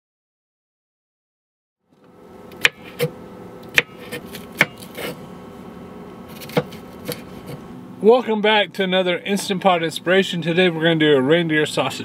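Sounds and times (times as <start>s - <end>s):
steady low hum: 1.9s - 12.0s
knife chopping on wooden board: 2.6s - 5.2s, 6.3s - 7.6s.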